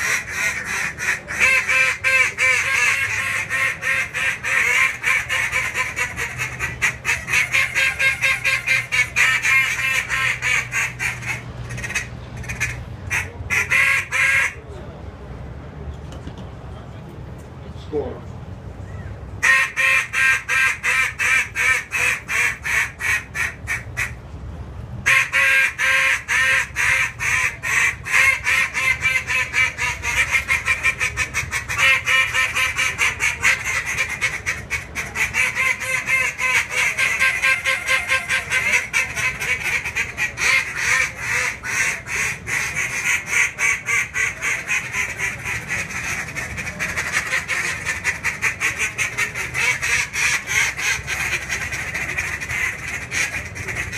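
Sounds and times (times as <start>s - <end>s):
duck calls quacking rapidly: 0.0s - 14.6s, 19.4s - 24.2s, 25.1s - 53.9s.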